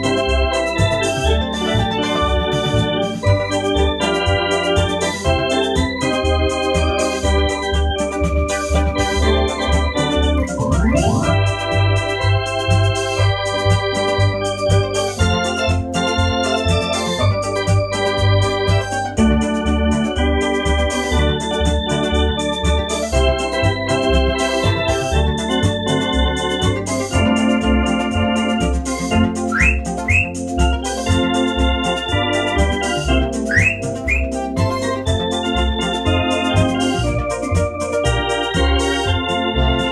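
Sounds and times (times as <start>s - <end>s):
electronic organ chords: 0.0s - 39.9s
pulsing bass line: 0.0s - 39.9s.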